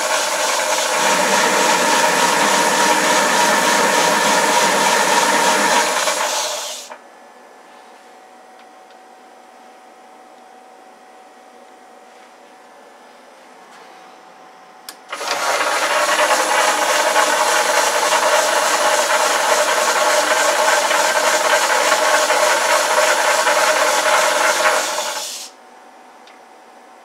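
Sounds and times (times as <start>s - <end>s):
metal lathe running: 0.0s - 7.0s, 15.1s - 25.5s.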